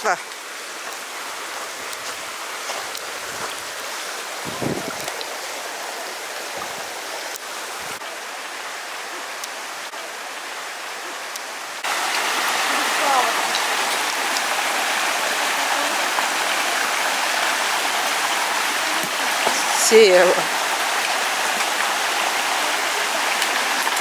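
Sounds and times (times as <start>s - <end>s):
stream running water: 0.0s - 24.0s.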